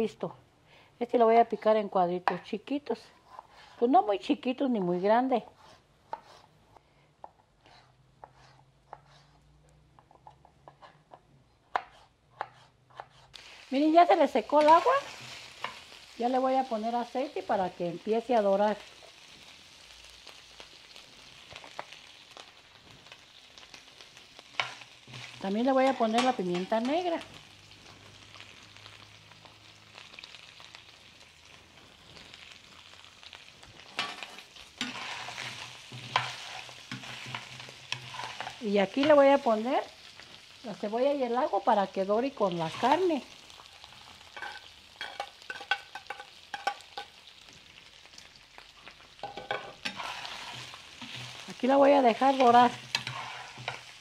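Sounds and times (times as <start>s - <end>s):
spatula scraping a pot: 5.4s - 6.6s, 7.6s - 9.5s, 33.9s - 39.2s, 49.2s - 54.0s
meat sizzling in hot oil: 13.2s - 54.0s.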